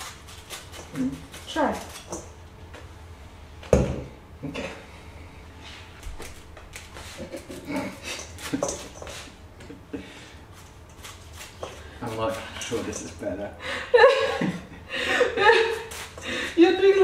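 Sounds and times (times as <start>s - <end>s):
knife cutting leaves: 0.0s - 2.3s, 10.6s - 13.1s.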